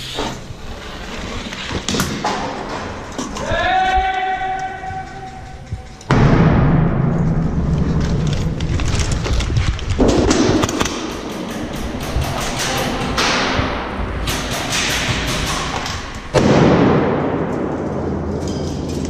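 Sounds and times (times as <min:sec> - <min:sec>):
rapid sharp knocks: 0:10.0 - 0:16.1.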